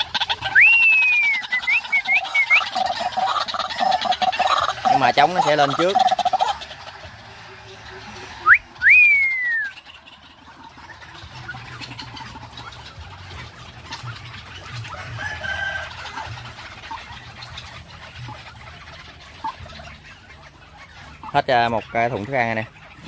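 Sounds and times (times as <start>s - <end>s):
birds calling: 0.0s - 23.0s
whistle falling in pitch: 0.6s - 1.8s, 8.4s - 9.7s.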